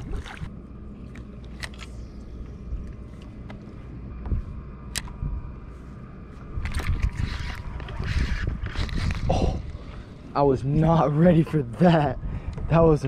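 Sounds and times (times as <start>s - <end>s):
water lapping against boat: 0.0s - 2.2s
wind on microphone: 6.5s - 10.1s.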